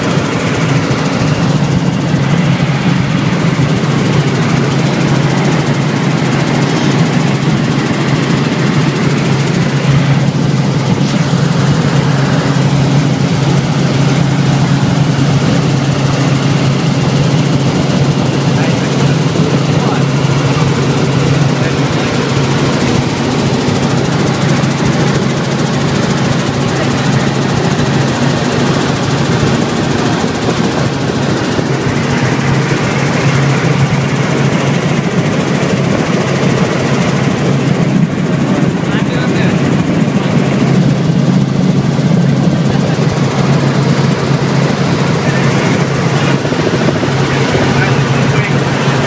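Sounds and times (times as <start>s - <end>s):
helicopter engine and rotor drone: 0.0s - 49.0s.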